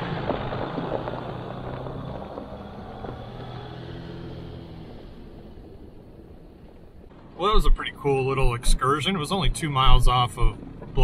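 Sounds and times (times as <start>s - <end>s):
tyres on gravel: 0.0s - 3.7s.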